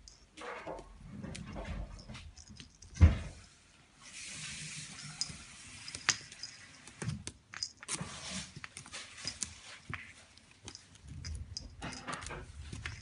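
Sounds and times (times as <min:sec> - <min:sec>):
kitten scuffling in wicker basket: 0:01.0 - 0:13.0
hissing rustle: 0:04.0 - 0:06.6.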